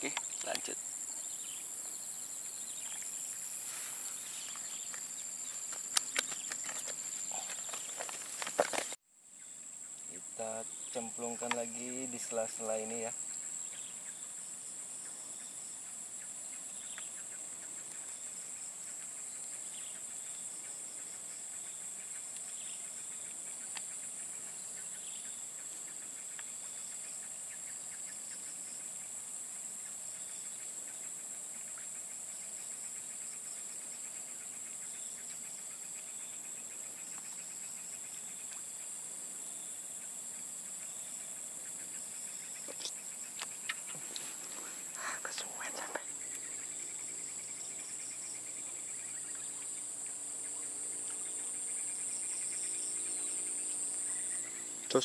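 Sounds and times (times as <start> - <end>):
insects shrilling: 0.0 - 9.0, 10.0 - 13.6, 40.7 - 55.0.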